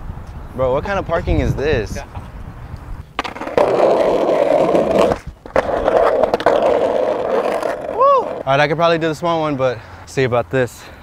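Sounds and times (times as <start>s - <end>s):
skateboard wheels rolling on concrete: 0.8s - 10.4s
skateboard clacks: 3.2s - 8.4s.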